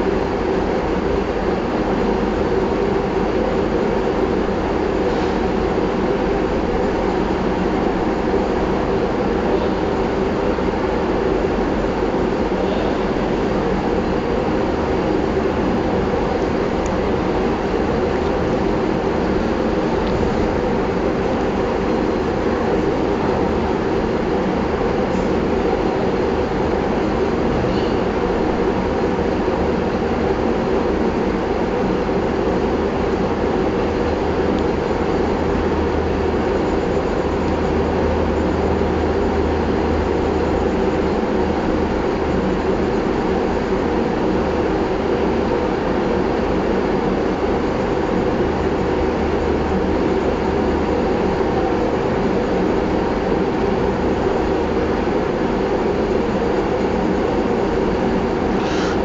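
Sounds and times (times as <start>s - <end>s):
mechanical drone with low hum: 0.0s - 59.0s.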